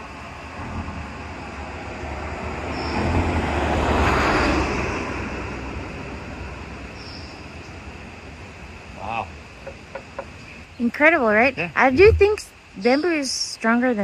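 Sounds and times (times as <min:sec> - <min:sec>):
vehicle driving past: 0:00.5 - 0:08.0.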